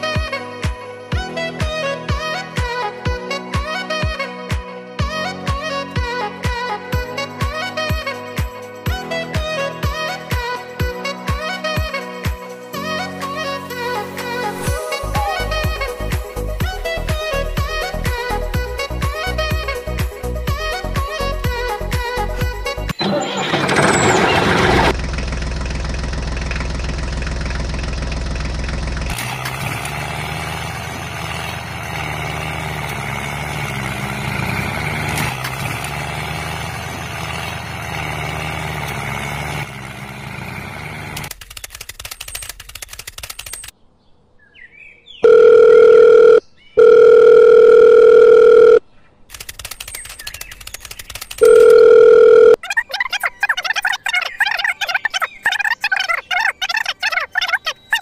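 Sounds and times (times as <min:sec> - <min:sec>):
tractor engine running: 0:14.6 - 0:43.7, 0:47.3 - 0:52.6
telephone ring tone beeps: 0:45.2 - 0:48.8, 0:51.4 - 0:52.6.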